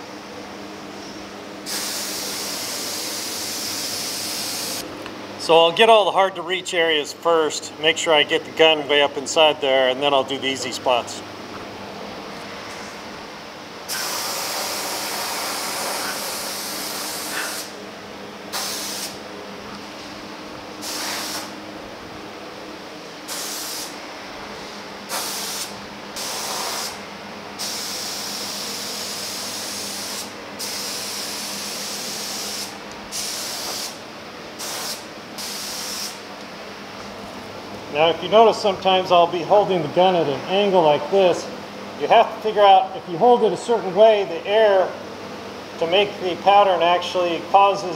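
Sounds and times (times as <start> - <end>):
spray gun hissing: 1.6 - 4.8, 13.9 - 17.8, 18.5 - 19.2, 20.8 - 21.5, 23.3 - 24.0, 25.1 - 27.0, 27.6 - 34.0, 34.6 - 36.2.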